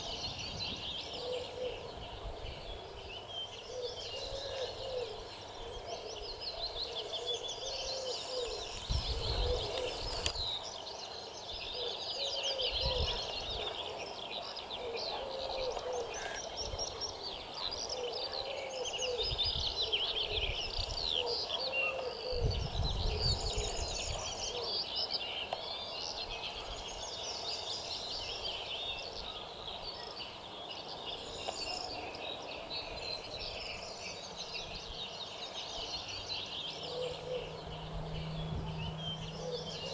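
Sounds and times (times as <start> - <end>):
wind rumbling on microphone: 0.0 - 3.2, 8.5 - 10.6, 12.7 - 13.8, 19.1 - 21.2, 22.2 - 24.6, 37.2 - 39.9
songbirds singing: 0.0 - 39.9.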